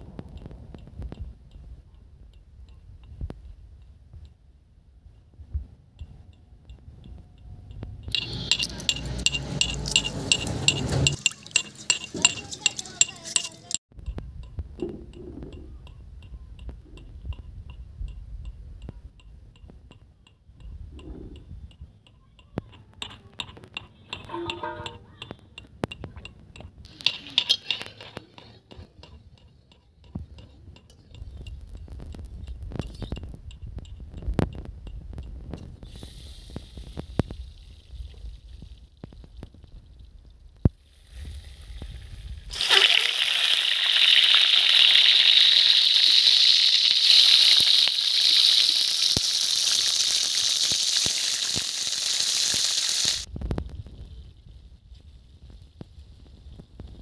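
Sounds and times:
eggs sizzling in hot oil: 0:08.1 - 0:13.8, 0:40.7 - 0:53.3.

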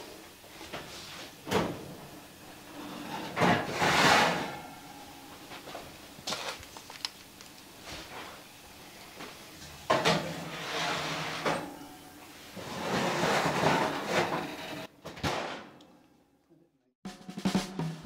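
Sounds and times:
oven door shutting: 0:00.6 - 0:05.9, 0:09.2 - 0:15.7
metal baking pan scraping and rattling: 0:02.7 - 0:05.2, 0:09.9 - 0:11.8, 0:12.5 - 0:15.5.

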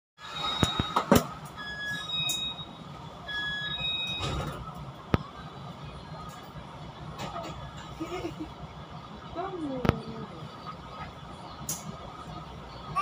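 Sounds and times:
high electronic warning beeps: 0:00.2 - 0:04.6.

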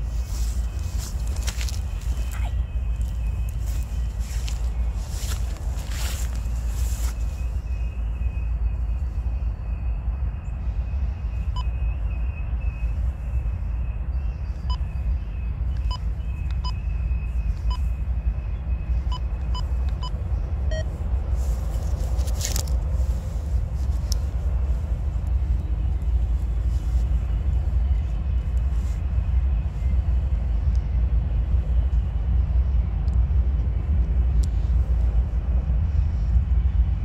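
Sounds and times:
wind buffeting the microphone: 0:00.0 - 0:37.0.

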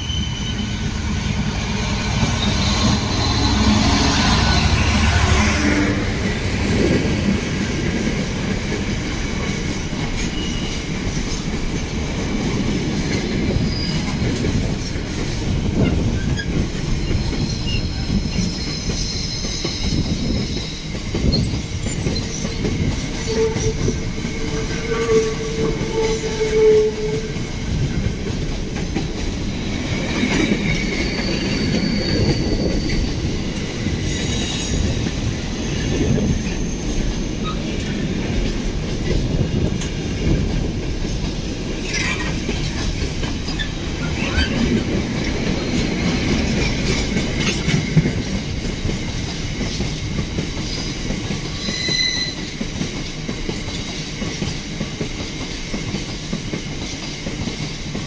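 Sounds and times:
wheel squeals: 0:00.0 - 0:00.9, 0:10.2 - 0:10.8, 0:13.2 - 0:14.4, 0:15.8 - 0:27.3, 0:30.2 - 0:33.3, 0:34.0 - 0:38.0, 0:50.6 - 0:52.6
train wheels rumbling on rails: 0:00.0 - 0:58.0.

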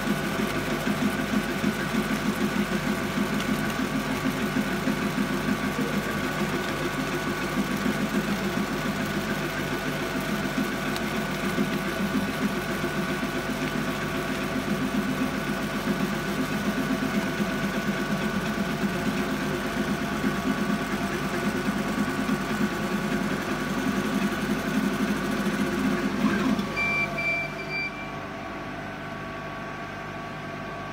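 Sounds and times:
high beep: 0:26.7 - 0:28.2.

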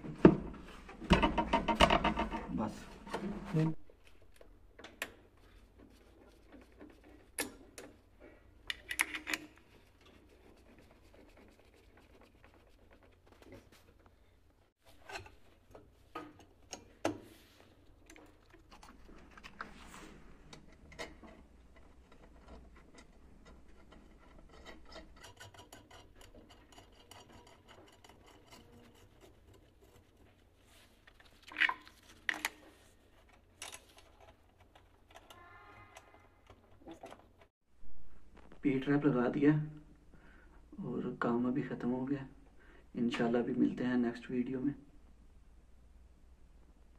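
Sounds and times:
sharp clicks and knocks: 0:00.2 - 0:02.5.

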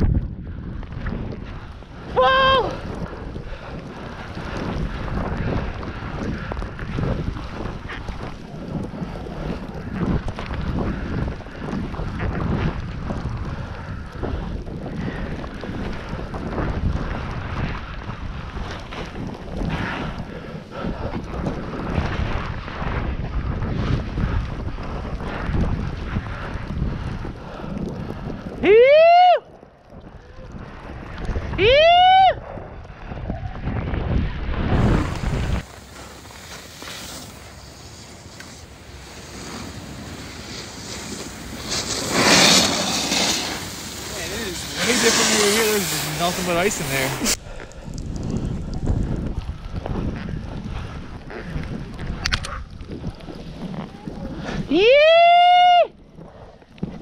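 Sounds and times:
wind rushing over microphone: 0:00.0 - 0:57.0
snowboard sliding through snow: 0:00.8 - 0:29.3, 0:33.1 - 0:57.0
snowboard scraping across snow: 0:34.2 - 0:47.4.

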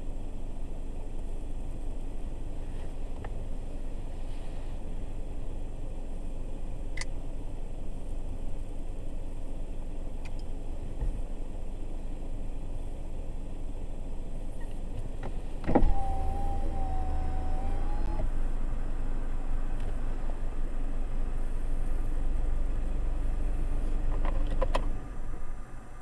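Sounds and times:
low rumble inside a car: 0:00.0 - 0:26.0
power window motor whining: 0:14.6 - 0:18.7.

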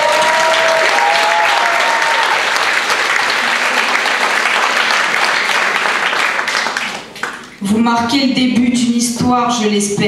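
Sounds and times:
crowd applauding: 0:00.0 - 0:07.6.

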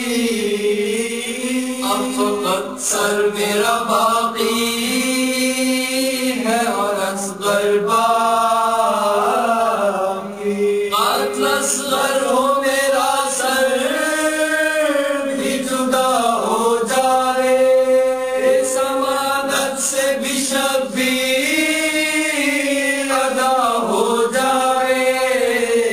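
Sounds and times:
person chanting a lament: 0:00.0 - 0:25.9.

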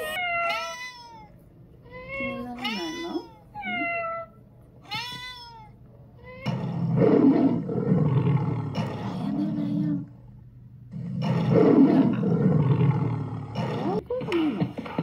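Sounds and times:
cat meowing: 0:00.0 - 0:06.6
lion roaring: 0:06.4 - 0:10.1, 0:10.9 - 0:14.0.

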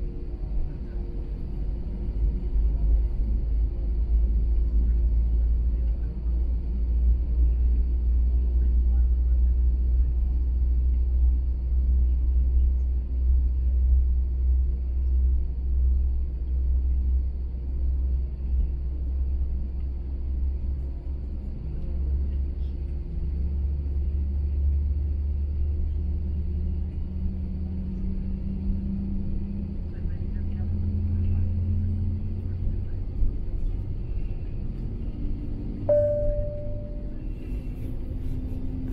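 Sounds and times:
aircraft cabin rumble and hum: 0:00.0 - 0:38.9
low tone rising in pitch: 0:35.9 - 0:37.3.

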